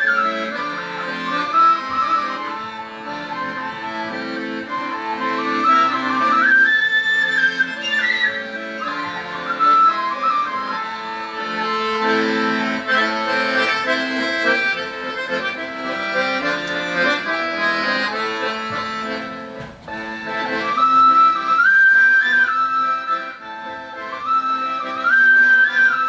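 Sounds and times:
high pipe melody: 0.0s - 19.3s
button accordion playing folk chords: 0.0s - 26.0s.

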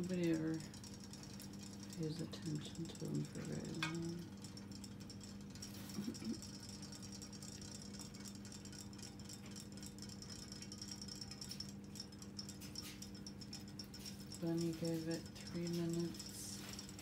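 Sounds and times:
toy motors buzzing: 0.0s - 9.2s, 14.0s - 17.0s.

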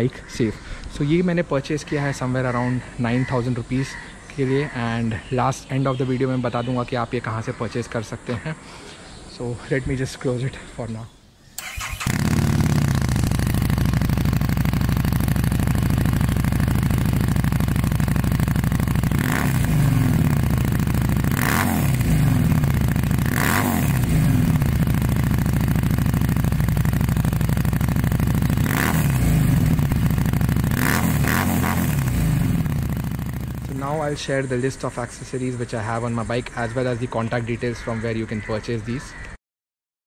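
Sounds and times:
motorcycle idling and revving: 11.6s - 37.0s.

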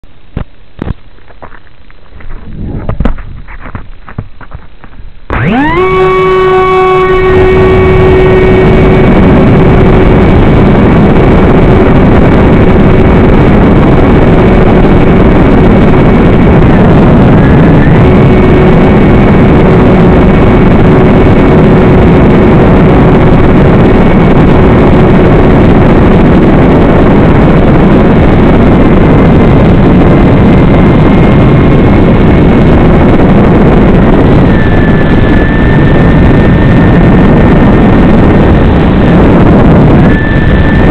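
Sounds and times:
wind rush: 0.3s - 40.9s
model aircraft motor whining: 5.3s - 26.9s, 33.8s - 40.9s.

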